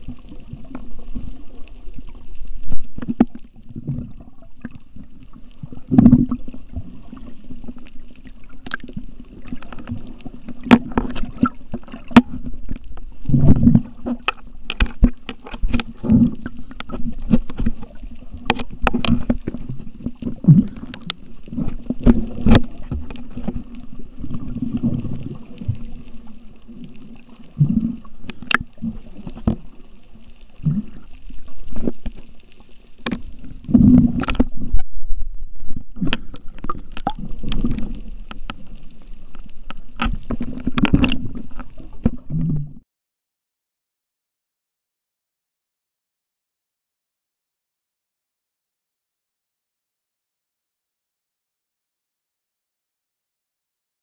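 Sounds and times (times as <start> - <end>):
water swishing underwater: 0.0 - 42.8
sharp underwater clicks: 7.2 - 42.7.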